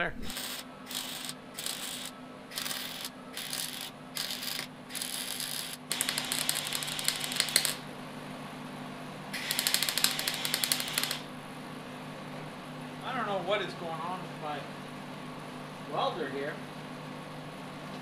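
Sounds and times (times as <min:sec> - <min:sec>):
welder crackling and popping: 0:00.2 - 0:07.8, 0:09.4 - 0:11.3.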